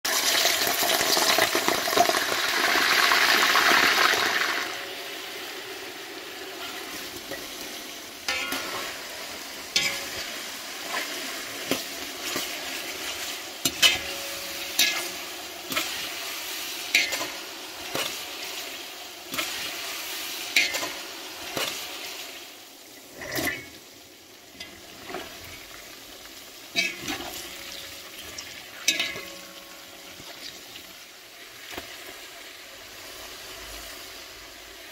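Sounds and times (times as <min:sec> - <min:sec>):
meat sizzling in hot oil: 0:00.1 - 0:34.9
metal skimmer scraping pot: 0:09.7 - 0:10.3, 0:23.1 - 0:23.8.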